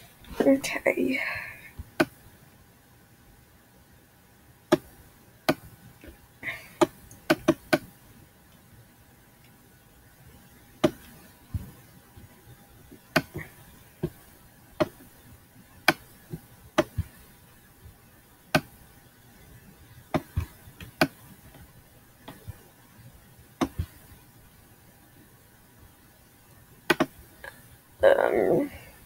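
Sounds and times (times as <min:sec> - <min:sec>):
computer mouse clicks: 0:02.0 - 0:02.2, 0:26.9 - 0:27.2.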